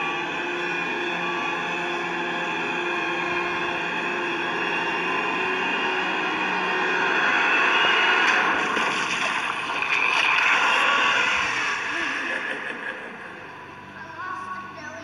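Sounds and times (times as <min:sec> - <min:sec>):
water rushing through storm drain: 0:07.9 - 0:12.4.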